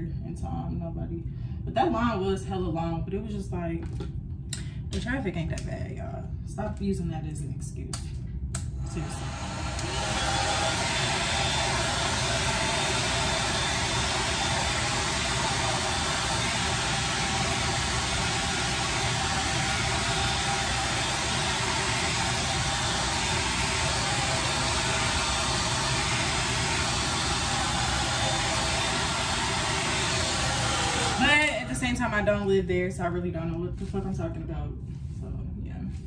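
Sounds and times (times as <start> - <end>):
hair dryer running: 8.6 - 32.6.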